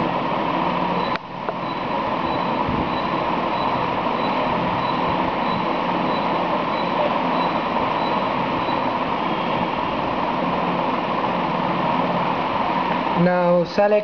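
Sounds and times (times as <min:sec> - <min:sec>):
faint high whine: 0:00.0 - 0:13.8
steady rushing noise: 0:00.0 - 0:14.0.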